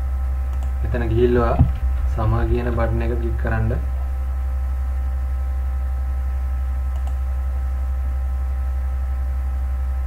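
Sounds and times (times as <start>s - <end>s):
steady low hum: 0.0s - 10.0s
computer mouse clicks: 0.5s - 0.8s, 6.9s - 7.2s.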